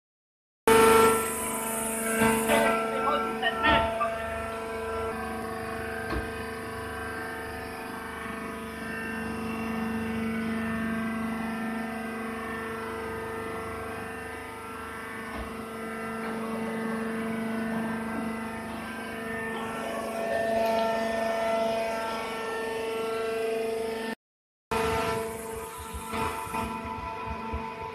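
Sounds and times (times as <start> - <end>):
motor and hydraulic pump humming: 0.7 - 27.9.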